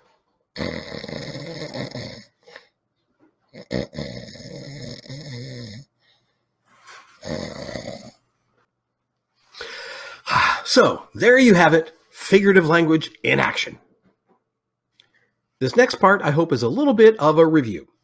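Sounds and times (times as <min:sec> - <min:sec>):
man snoring: 0:00.6 - 0:02.7, 0:03.5 - 0:05.9, 0:07.2 - 0:08.2.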